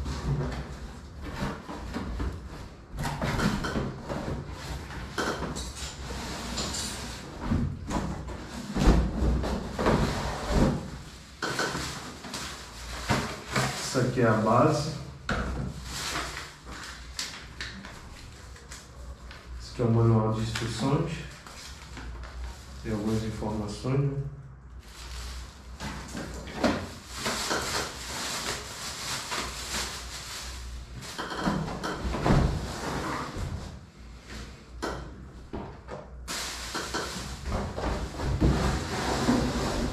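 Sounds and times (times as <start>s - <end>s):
plastic bag crinkling: 24.8s - 25.9s, 26.8s - 31.3s
packaging rustling: 24.8s - 31.3s
cardboard scraping and rubbing: 37.1s - 39.9s.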